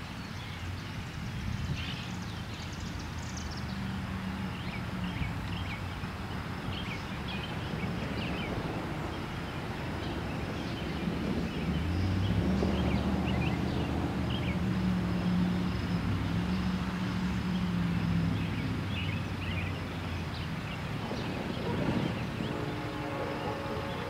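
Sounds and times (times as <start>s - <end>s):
low engine rumble: 2.8s - 24.0s
distant locomotive air horn: 21.2s - 24.0s.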